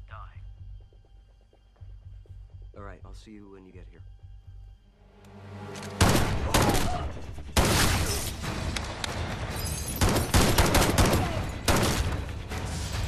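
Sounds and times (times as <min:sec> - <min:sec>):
rapid gunfire bursts: 0:10.0 - 0:12.0.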